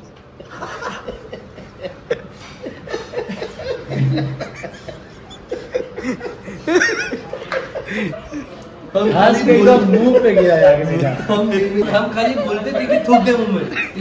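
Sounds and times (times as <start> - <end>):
people chuckling quietly: 0.2 - 8.7.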